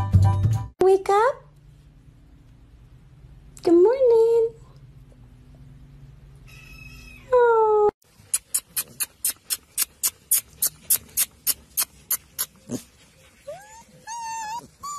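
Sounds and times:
kitten meowing: 6.5 - 7.3.

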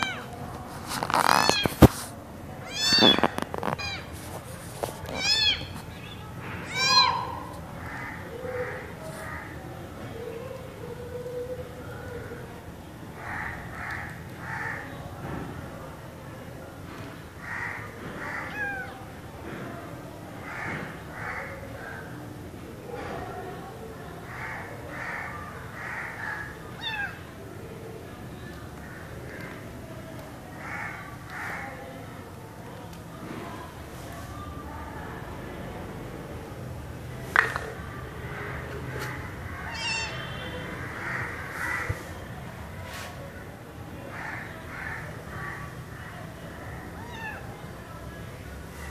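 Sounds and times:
kitten meowing: 1.2 - 1.8, 2.6 - 4.1, 5.1 - 6.1, 26.8 - 27.2, 39.6 - 40.2, 47.0 - 47.4
kitten mewing: 2.6 - 4.1.

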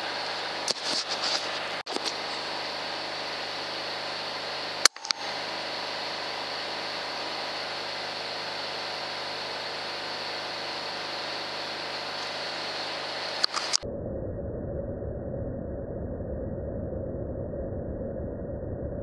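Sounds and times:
machine hum with hiss: 0.0 - 13.8
sharp click: 4.8 - 5.2, 13.4 - 13.8.

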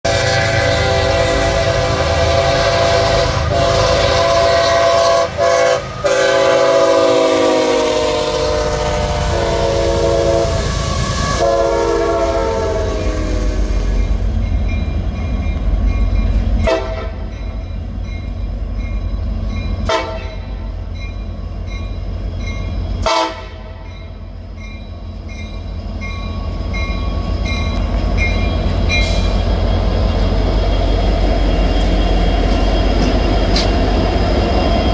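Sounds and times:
train air horn chord: 0.0 - 13.9, 16.6 - 17.2, 19.9 - 20.5, 23.0 - 23.8
diesel locomotive engine rumble: 0.0 - 34.9.

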